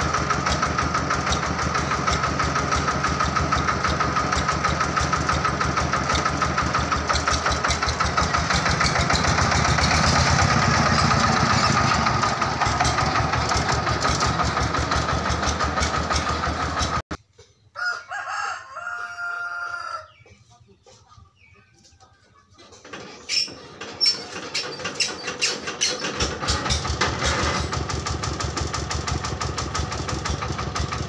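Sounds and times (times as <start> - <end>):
engine running with rapid beat: 0.0 - 17.2, 24.4 - 31.0
rooster crowing: 17.7 - 20.2.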